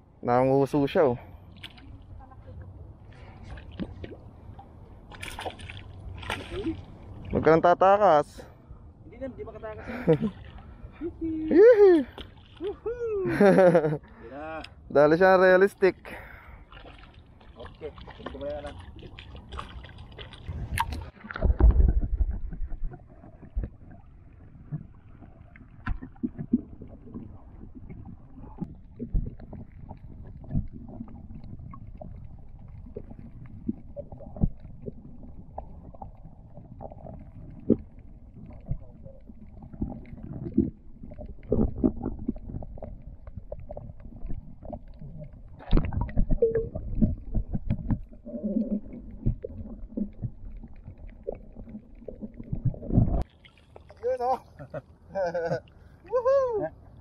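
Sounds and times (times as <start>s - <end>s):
underwater water rumble: 14.8s - 53.8s
underwater knocks and thumps: 19.5s - 53.3s.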